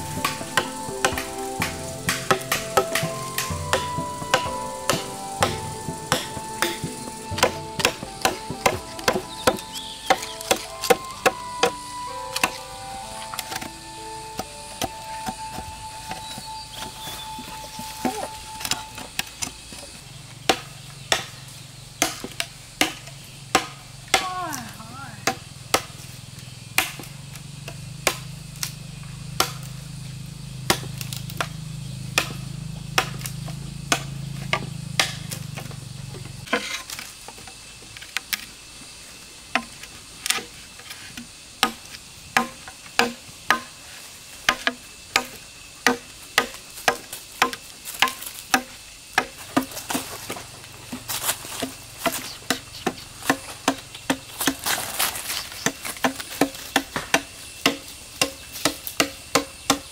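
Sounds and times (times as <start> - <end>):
machete chopping bamboo: 0.1 - 11.8, 18.0 - 26.1, 26.7 - 29.8, 30.6 - 35.7, 39.5 - 43.8, 44.5 - 50.4, 51.0 - 59.9.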